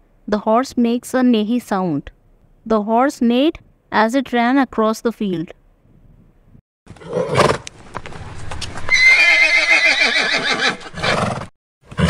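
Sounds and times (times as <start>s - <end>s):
horse neighing: 6.9s - 7.7s, 8.9s - 12.0s.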